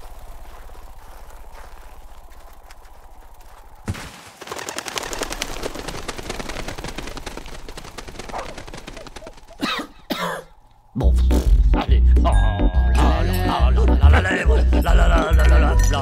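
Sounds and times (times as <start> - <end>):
rapid crackling clatter: 0.0 - 9.8.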